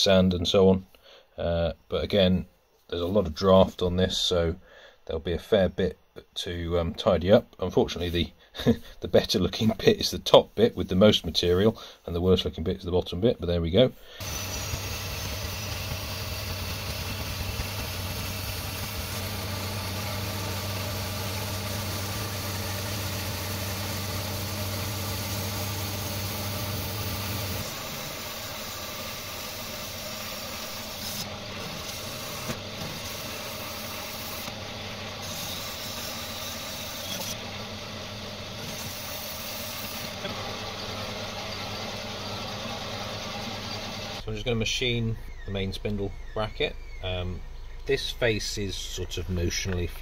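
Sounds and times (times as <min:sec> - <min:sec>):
saw blade hissing: 0:14.0 - 0:44.2
bandsaw motor hum: 0:14.2 - 0:44.4.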